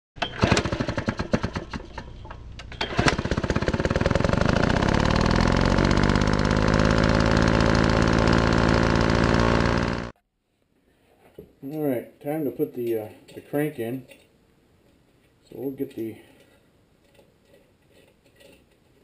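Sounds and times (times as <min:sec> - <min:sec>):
small engine starting and running: 0:00.2 - 0:10.2.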